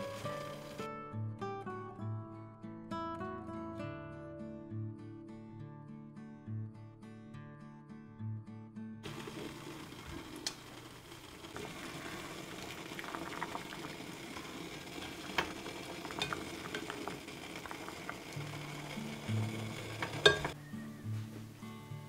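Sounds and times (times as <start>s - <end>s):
water simmering in a pan: 0.0s - 0.8s, 9.0s - 20.6s
soft guitar music: 0.0s - 10.0s, 17.5s - 22.0s.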